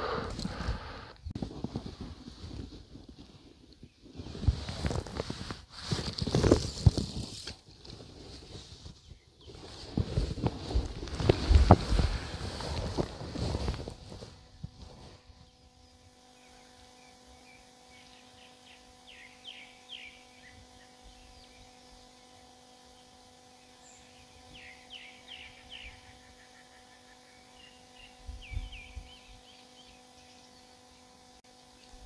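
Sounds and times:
faint steady hum: 0.0s - 32.0s
small birds chirping: 15.3s - 32.0s.

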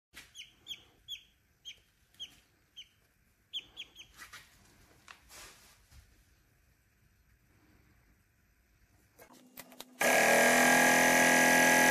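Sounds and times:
baby chick peeping: 0.2s - 4.4s.

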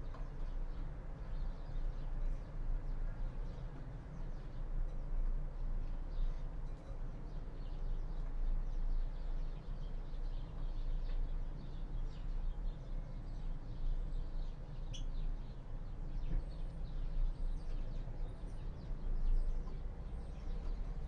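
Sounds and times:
finches chirping: 13.7s - 21.0s.

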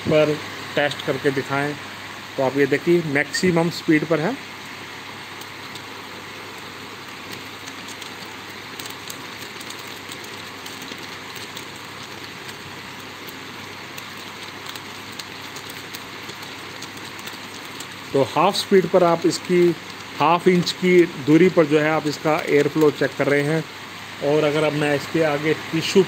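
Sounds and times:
electric fan running: 0.0s - 26.0s
ribbon strips fluttering: 5.4s - 23.4s.

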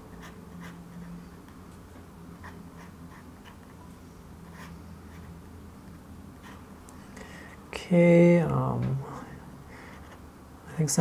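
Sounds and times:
faint low hum: 0.0s - 11.0s
pen nib scratching paper: 0.2s - 1.4s, 2.4s - 5.3s.

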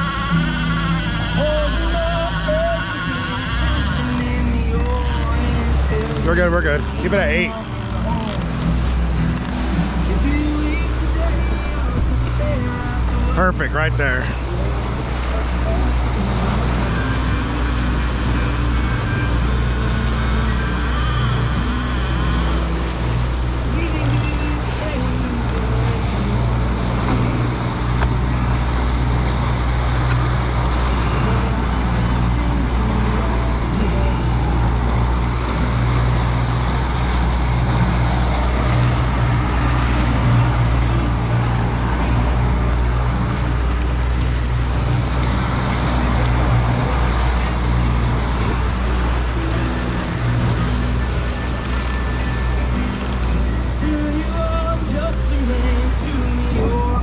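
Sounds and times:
boat engine humming: 0.0s - 57.0s
wind and water rushing: 0.0s - 57.0s.

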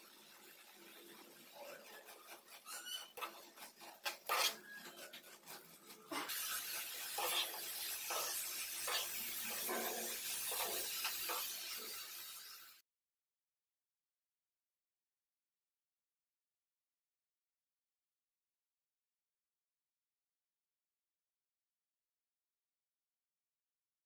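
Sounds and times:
spoon scraping a pan: 0.0s - 12.7s.

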